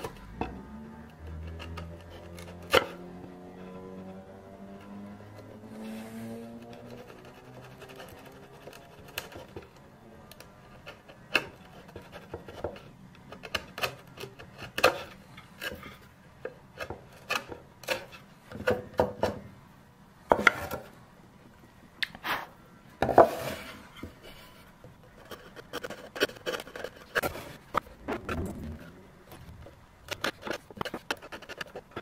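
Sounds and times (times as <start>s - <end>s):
chisel scraping wood: 4.8s - 9.8s, 10.7s - 19.4s, 23.1s - 28.9s.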